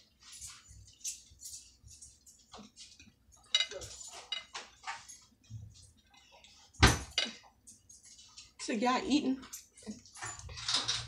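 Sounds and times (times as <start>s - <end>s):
forks clinking on ceramic plates: 0.2s - 5.3s, 6.4s - 8.5s.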